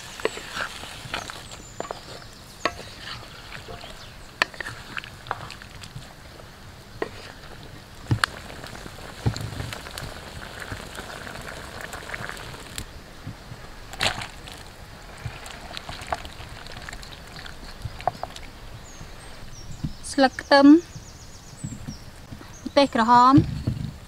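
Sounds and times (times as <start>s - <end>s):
food sizzling in a pan: 0.0s - 5.6s, 8.0s - 12.8s
wood fire crackling: 0.0s - 19.8s.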